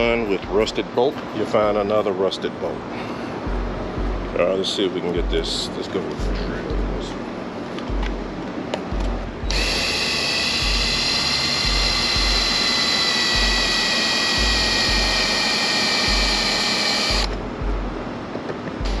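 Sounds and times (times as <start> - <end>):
cordless drill on bolt: 9.5 - 17.3.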